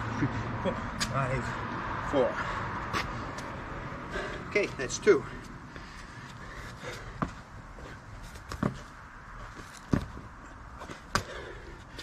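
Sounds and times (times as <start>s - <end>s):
thuds on asphalt: 7.0s - 11.5s.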